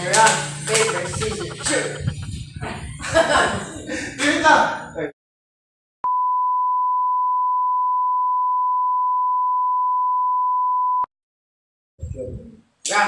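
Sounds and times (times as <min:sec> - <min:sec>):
steady test tone beep: 0:00.7 - 0:02.4.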